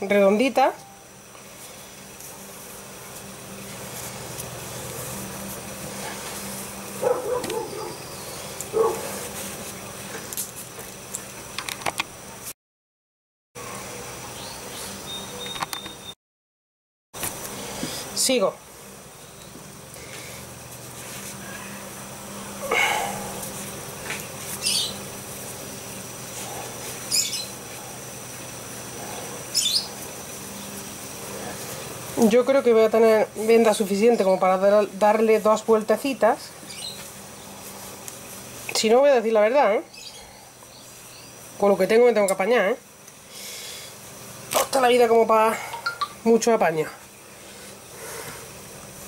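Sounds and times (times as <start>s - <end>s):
background hum: 0.0s - 12.5s, 17.2s - 49.0s
bird chirping: 24.6s - 25.0s, 27.1s - 27.6s, 29.5s - 29.9s, 36.7s - 37.0s.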